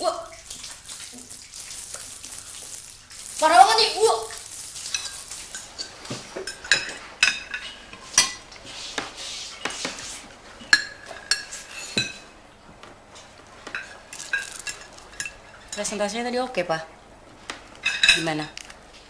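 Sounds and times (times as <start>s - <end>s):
cutlery clinking on plates: 4.8s - 10.0s, 10.7s - 12.3s, 13.7s - 15.9s, 17.8s - 18.6s.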